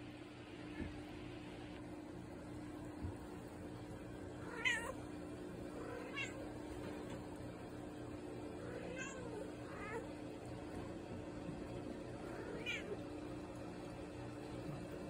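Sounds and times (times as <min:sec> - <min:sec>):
cat meowing: 0:04.4 - 0:05.0, 0:05.8 - 0:06.4, 0:08.7 - 0:10.0, 0:12.4 - 0:13.0.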